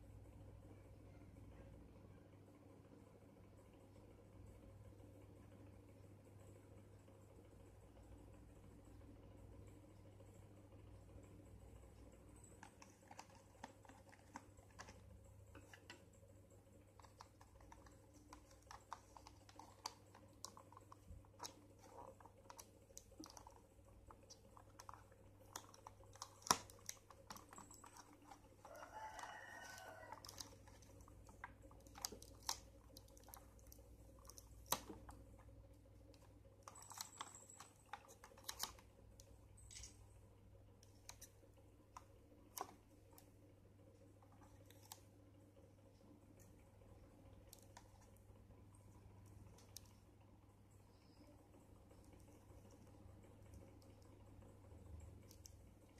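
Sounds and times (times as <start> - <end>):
chicken crowing: 28.7 - 30.4.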